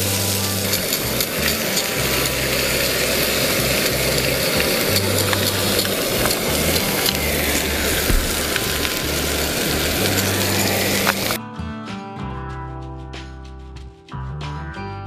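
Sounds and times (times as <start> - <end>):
ham sizzling in a pan: 0.0 - 11.4.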